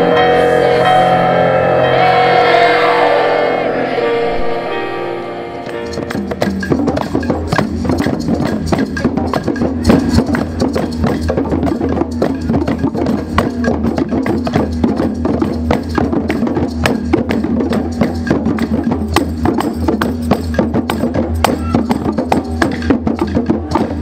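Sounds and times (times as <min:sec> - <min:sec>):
steady low tone: 0:00.0 - 0:07.1
fast hand drumming: 0:05.9 - 0:24.0.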